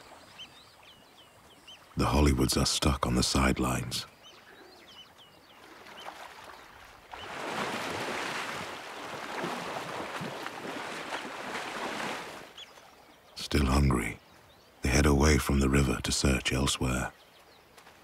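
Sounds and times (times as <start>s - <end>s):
water splashing and churning: 0.0s - 4.6s, 5.4s - 13.6s
faint bird chirps: 0.0s - 7.4s, 12.4s - 17.8s.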